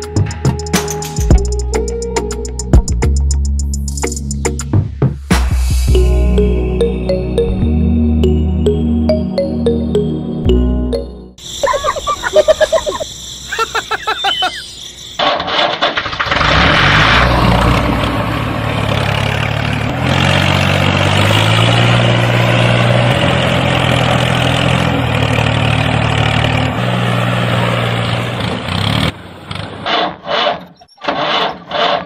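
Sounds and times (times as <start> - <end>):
tractor engine running: 15.2 - 32.0.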